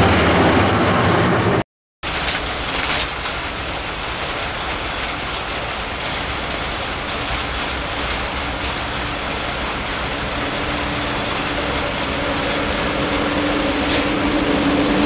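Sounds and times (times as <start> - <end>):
distant electric train rumble: 0.0 - 15.0
rain hissing: 2.0 - 15.0.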